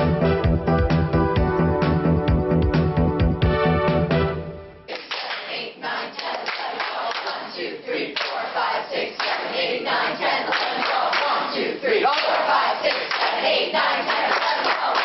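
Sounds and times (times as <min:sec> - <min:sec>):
people clapping: 0:04.9 - 0:15.0.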